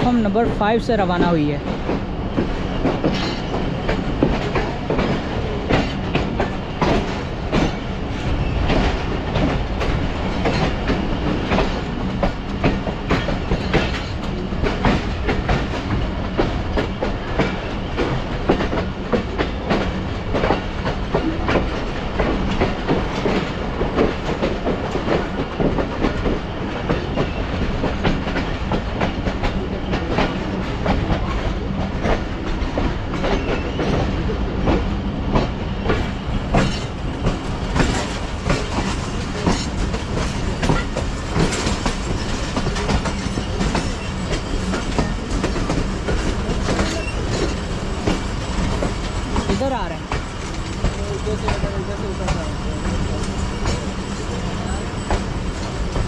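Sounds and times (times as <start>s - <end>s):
train wheels clattering over rails: 0.0s - 56.0s.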